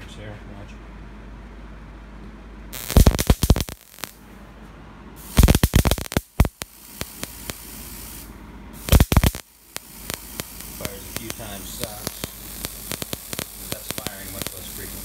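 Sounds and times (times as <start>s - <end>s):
spark gap cracking: 2.8s - 4.2s, 5.2s - 15.0s
steady hiss: 2.8s - 4.2s, 5.2s - 15.0s.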